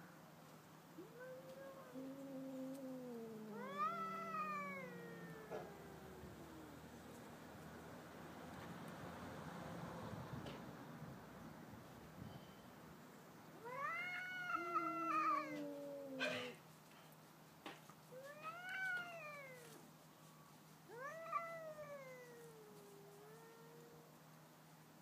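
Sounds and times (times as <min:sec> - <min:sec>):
cats yowling: 0:01.0 - 0:07.2, 0:13.6 - 0:16.6, 0:18.2 - 0:19.8, 0:20.9 - 0:24.0.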